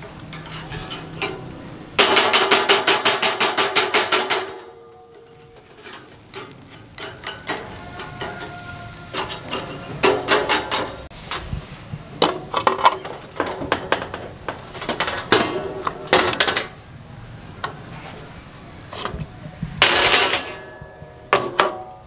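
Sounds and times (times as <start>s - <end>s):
wire grill basket clattering: 0.0s - 11.6s, 12.2s - 16.8s, 19.8s - 22.0s
knife scraping steel tray: 0.3s - 1.5s, 5.3s - 11.1s.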